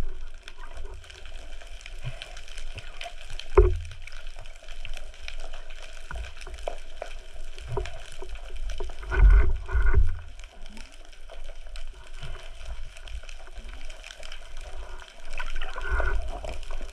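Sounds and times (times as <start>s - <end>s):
water gurgling underwater: 0.0s - 4.4s, 14.8s - 16.9s.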